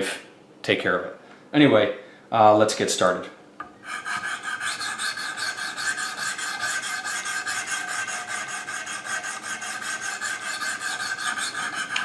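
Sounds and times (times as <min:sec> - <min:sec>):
stone scraping knife blade: 0:03.8 - 0:12.0.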